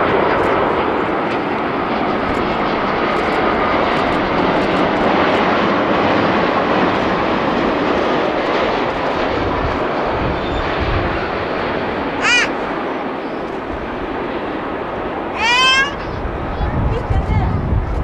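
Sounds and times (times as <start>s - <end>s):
jet engines rushing: 0.0s - 18.0s.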